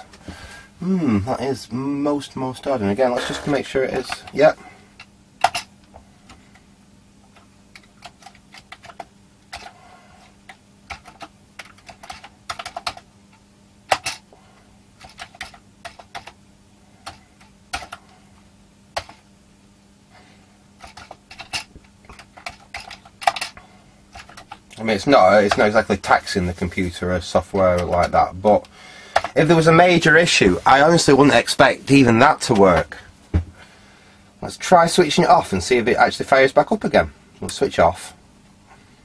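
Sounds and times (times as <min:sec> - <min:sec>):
faint low hum: 0:00.0 - 0:39.0.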